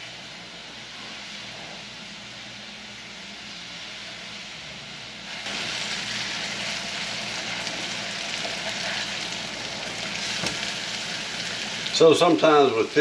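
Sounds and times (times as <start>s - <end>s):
fish sizzling in a pan: 5.3s - 13.0s
spatula scraping pan: 8.4s - 9.3s.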